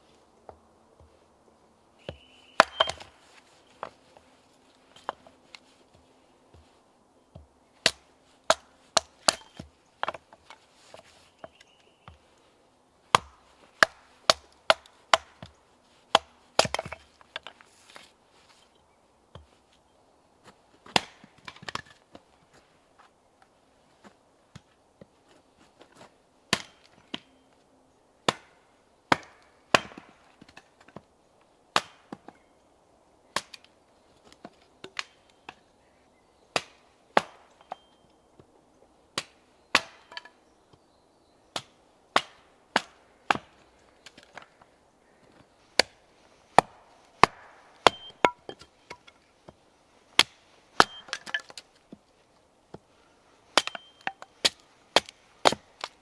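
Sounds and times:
axe chopping firewood: 2.0 - 4.0, 7.3 - 12.2, 13.1 - 18.1, 20.8 - 22.0, 26.5 - 27.3, 28.2 - 31.0, 31.7 - 32.4, 33.4 - 33.7, 36.5 - 37.9, 39.2 - 40.4, 41.5 - 44.6, 45.8 - 52.0, 52.7 - 56.0
wood pieces rustling: 50.7 - 52.2.

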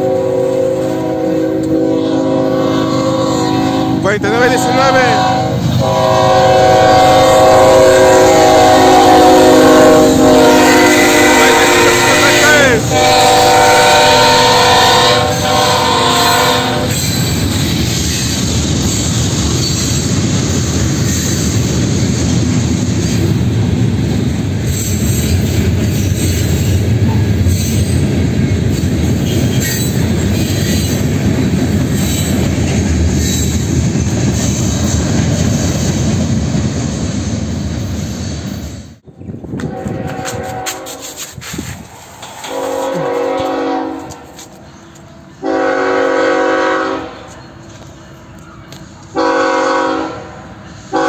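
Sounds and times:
locomotive horn: 0.0 - 17.0, 39.6 - 41.2, 42.4 - 44.5, 45.4 - 47.3, 49.1 - 51.0
train wheels rumbling on rail: 0.0 - 51.0.

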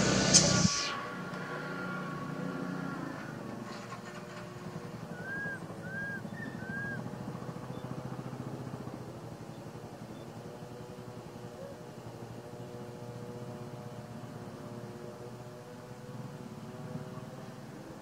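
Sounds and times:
engine running: 0.0 - 18.0
infant monkey crying: 5.2 - 7.0.

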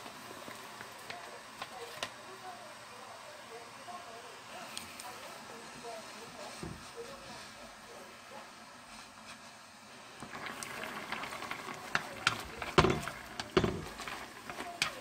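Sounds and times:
faint hiss: 0.0 - 15.0
chopsticks clicking on pan: 11.8 - 15.0.

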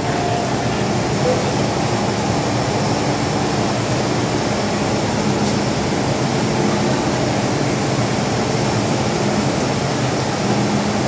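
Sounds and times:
stationary train humming: 0.0 - 11.0.

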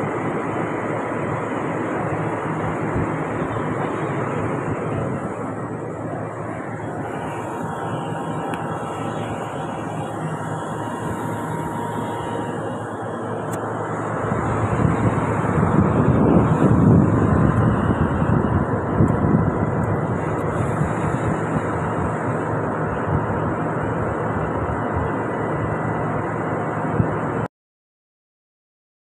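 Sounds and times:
machinery droning: 0.0 - 27.5
wind buffeting microphone: 2.0 - 26.2.

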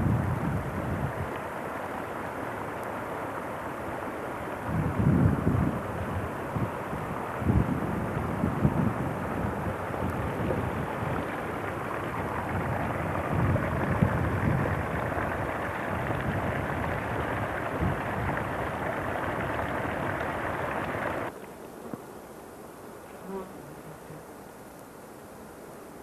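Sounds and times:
wind buffeting microphone: 0.0 - 1.4, 4.6 - 21.3.

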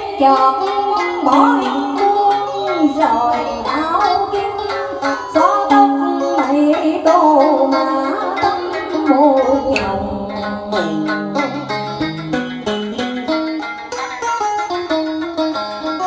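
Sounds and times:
woman singing into a microphone: 0.0 - 11.6
plucked string instruments melody: 0.0 - 16.0.

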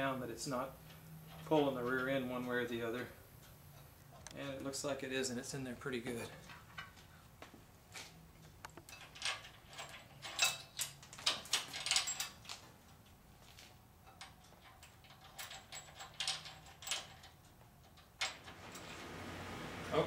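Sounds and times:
metal parts and tools clinking: 8.8 - 13.2, 14.0 - 19.0.

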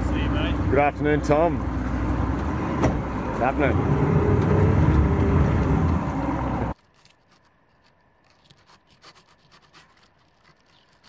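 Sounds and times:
loud low rumble: 0.0 - 6.7.

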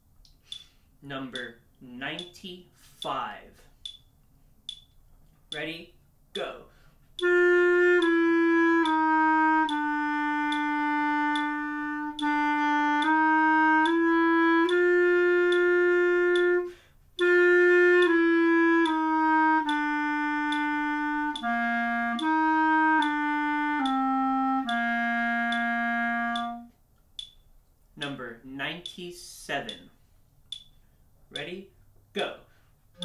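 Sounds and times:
clarinet playing slow melody: 7.2 - 26.8.

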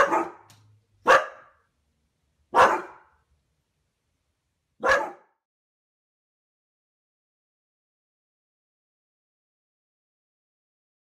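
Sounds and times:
dog barking: 0.0 - 1.6, 2.5 - 3.2, 4.8 - 5.4.

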